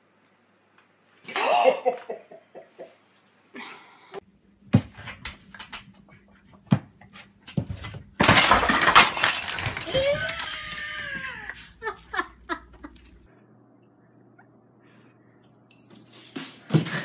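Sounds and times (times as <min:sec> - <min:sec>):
cat crying: 0:09.9 - 0:11.8.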